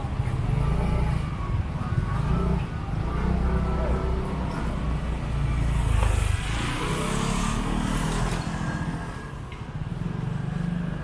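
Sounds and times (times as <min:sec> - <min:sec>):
street noise: 0:00.0 - 0:11.0.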